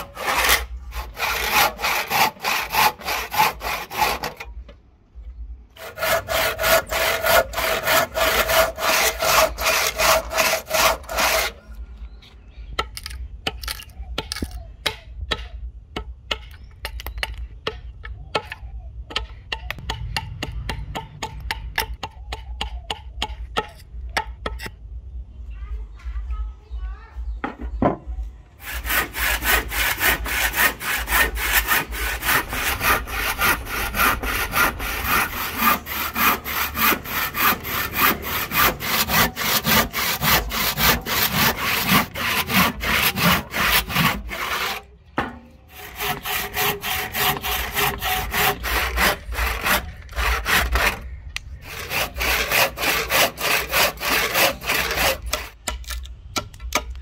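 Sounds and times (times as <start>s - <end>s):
handsaw cutting wood: 0.0s - 4.4s, 5.8s - 11.6s, 28.6s - 44.9s, 45.7s - 51.0s, 51.6s - 55.6s.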